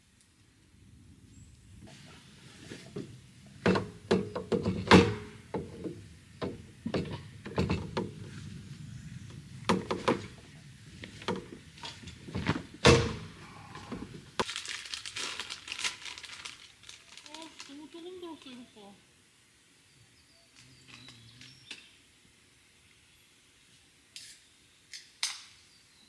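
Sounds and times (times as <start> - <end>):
light rustling: 1.5 - 18.7
knocks and clunks of wood and metal: 2.9 - 8.3, 9.6 - 14.5.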